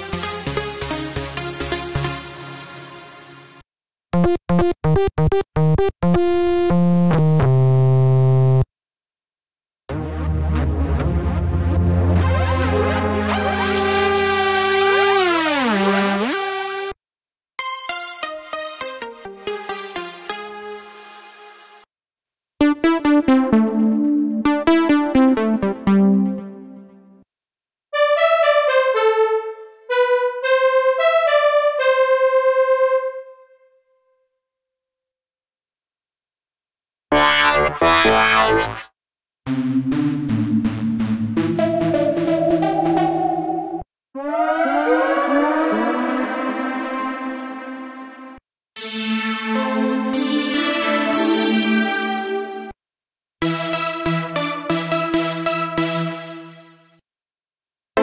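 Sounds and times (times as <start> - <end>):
buzzy synthesizer notes: 9.9 - 17.0, 37.1 - 38.9
bright pulsing synth melody: 37.1 - 38.8, 41.4 - 47.0.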